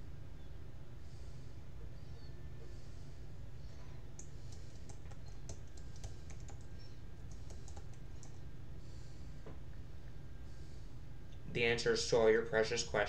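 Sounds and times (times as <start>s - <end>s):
steady low hum: 0.0s - 13.0s
light irregular clicks: 4.1s - 8.4s.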